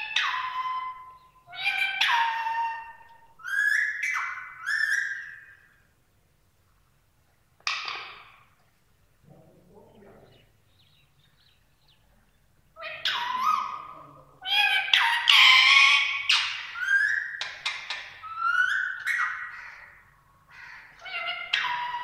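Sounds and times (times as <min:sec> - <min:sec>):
parakeet squawks and chirps: 0:00.0 - 0:05.6, 0:12.8 - 0:22.0.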